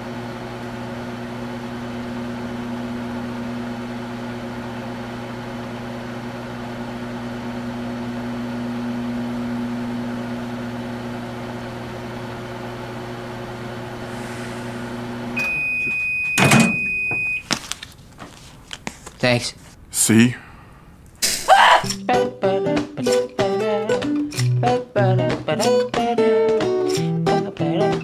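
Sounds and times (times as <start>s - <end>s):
microwave oven humming: 0.0s - 17.8s
microwave long high beep: 15.3s - 17.5s.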